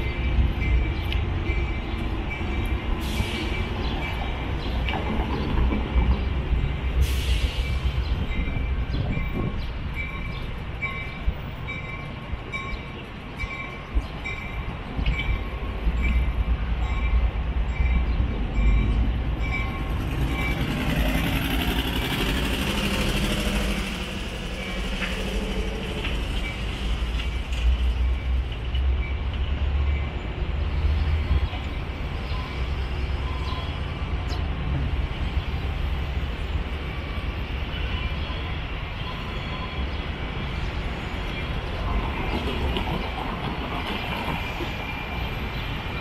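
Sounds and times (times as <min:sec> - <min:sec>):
train rumbling over steel bridge: 0:00.0 - 0:46.0
crossing bell dinging: 0:07.7 - 0:21.0.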